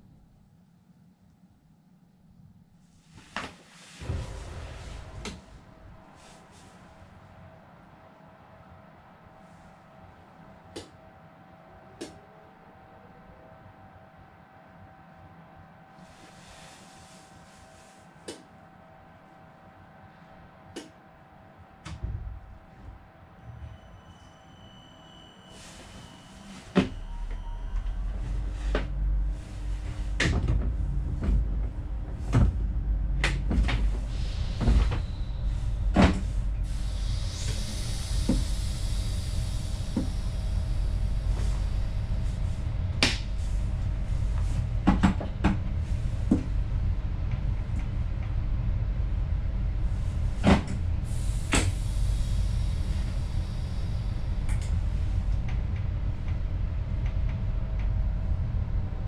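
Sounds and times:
train cab low rumble: 0.0s - 59.0s
air hiss: 33.8s - 44.6s, 49.9s - 55.2s.

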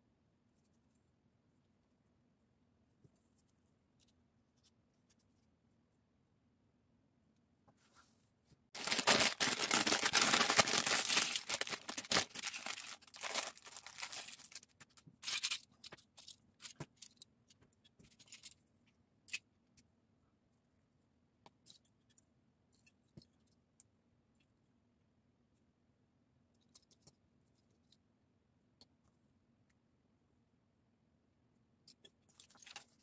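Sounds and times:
plastic pieces spilling: 8.8s - 14.6s
plastic bag tearing and crinkling: 8.8s - 14.7s.

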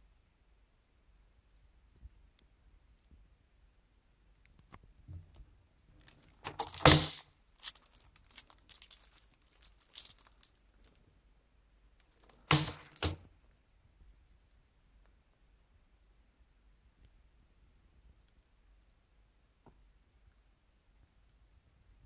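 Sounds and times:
cellophane wrap crinkling: 6.0s - 11.0s, 12.0s - 13.2s
plastic case knocking down: 6.4s - 7.2s, 12.4s - 13.2s.

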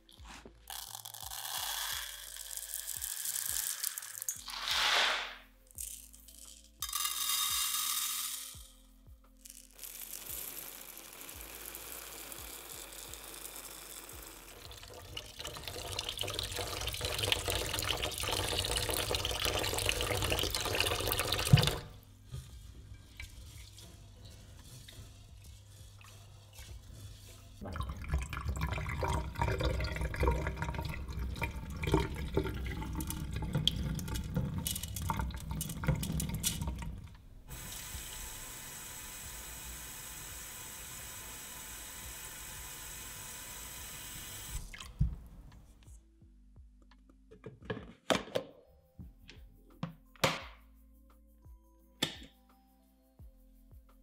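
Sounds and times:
tap water running onto rice: 10.0s - 26.9s, 27.6s - 43.0s.

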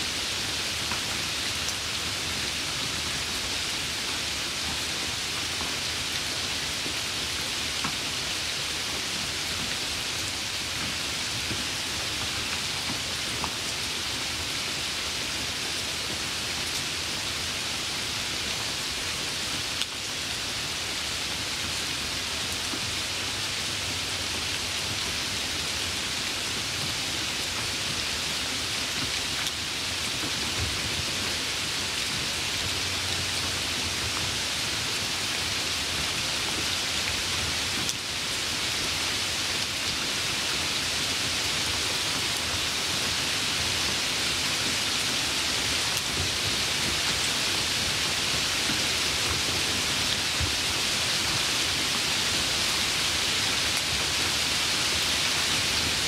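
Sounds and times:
steady rain: 0.0s - 56.0s.

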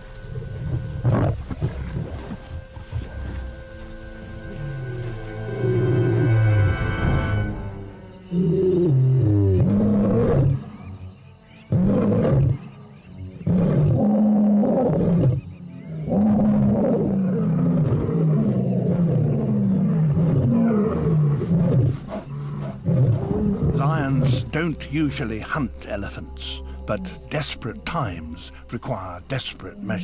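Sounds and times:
lion roaring: 8.3s - 11.0s, 11.7s - 12.7s, 13.3s - 24.4s
lion grunting: 11.6s - 30.0s.

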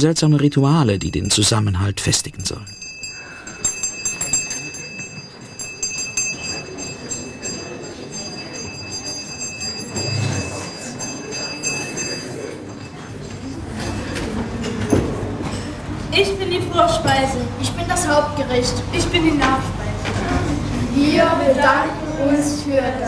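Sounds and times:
dishes and cutlery clinking: 2.7s - 18.1s
children's voices: 13.2s - 23.0s.

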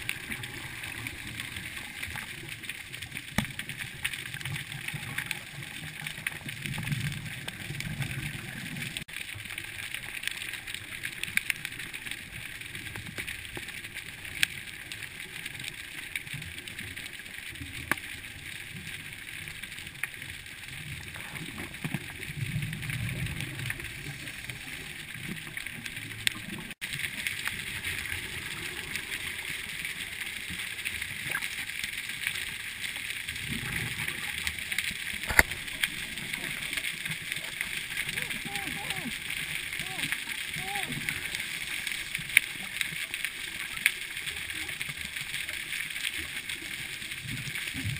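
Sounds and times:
regulator bubbles rumbling: 20.8s - 31.5s.

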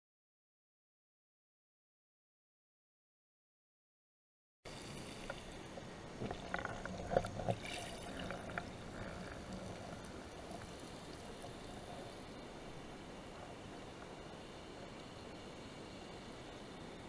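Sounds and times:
faint underwater hiss: 4.7s - 17.0s.

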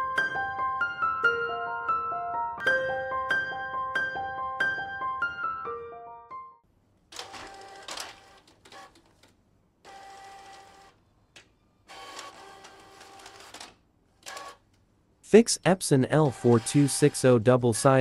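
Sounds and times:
inkjet printer whirring: 7.2s - 9.0s, 9.9s - 11.0s, 11.9s - 14.6s, 16.2s - 17.4s.

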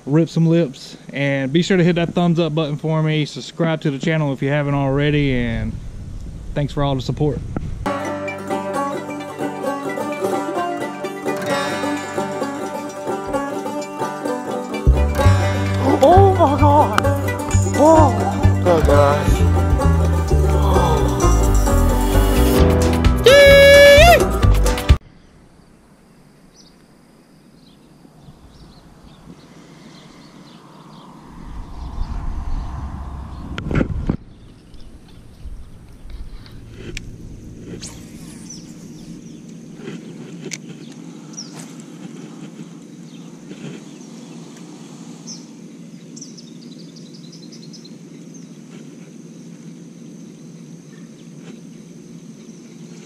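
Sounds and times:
high insect drone: 7.9s - 24.0s, 25.0s - 53.0s
low hum: 11.3s - 22.8s, 28.8s - 43.3s
bird chirping: 27.4s - 36.6s, 37.4s - 41.6s, 42.6s - 48.7s.

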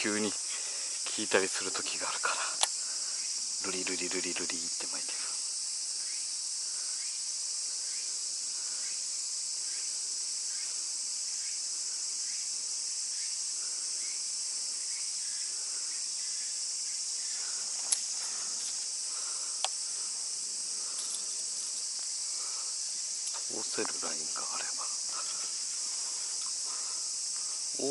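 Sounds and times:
cicadas droning: 0.0s - 27.9s
sharp clicks: 2.6s - 2.8s, 19.6s - 19.8s.

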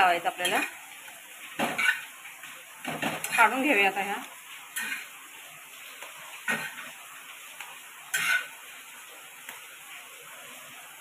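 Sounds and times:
spatula clattering on metal plate: 1.6s - 2.1s, 4.8s - 5.1s, 8.1s - 8.5s.

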